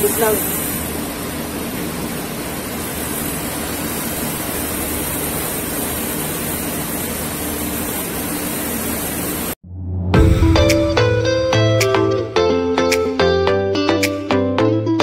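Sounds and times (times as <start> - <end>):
brazing torch hissing: 0.0 - 9.6.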